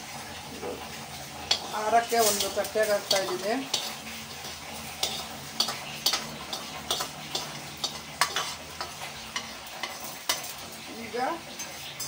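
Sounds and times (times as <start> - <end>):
gas burner hissing: 0.0 - 12.0
metal spoon scraping steel plate: 1.5 - 10.6.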